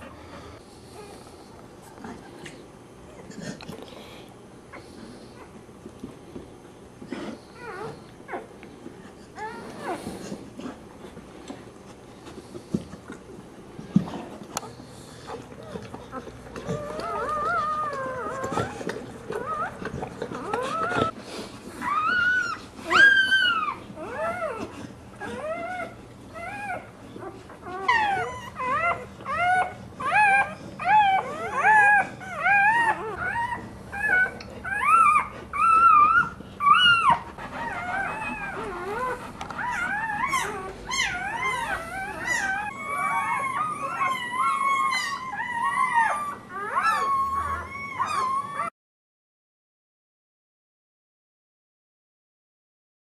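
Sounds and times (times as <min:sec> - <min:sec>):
puppies crying: 0:15.3 - 0:48.7.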